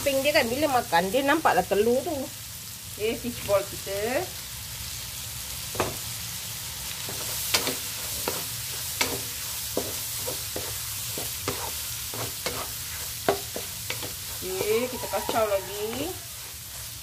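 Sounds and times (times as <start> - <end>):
food sizzling in oil: 0.0 - 17.0
spatula scraping a wok: 6.8 - 17.0.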